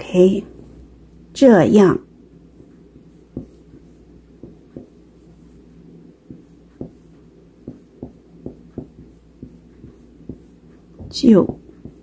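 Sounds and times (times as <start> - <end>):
low steady hum: 0.0 - 12.0
marker writing on whiteboard: 2.6 - 12.0.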